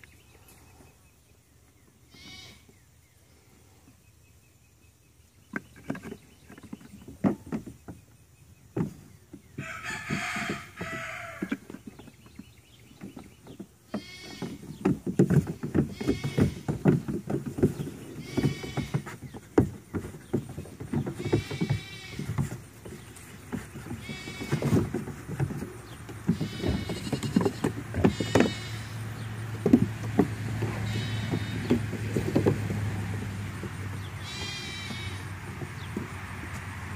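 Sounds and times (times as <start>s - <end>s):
goat kids bleating: 2.1s - 2.7s, 9.6s - 11.6s, 13.9s - 14.7s, 15.8s - 16.9s, 18.1s - 19.2s, 20.9s - 22.6s, 23.5s - 25.6s, 26.2s - 29.3s, 30.6s - 32.5s, 34.0s - 35.5s
hooves knocking on wood and plastic: 5.5s - 36.7s.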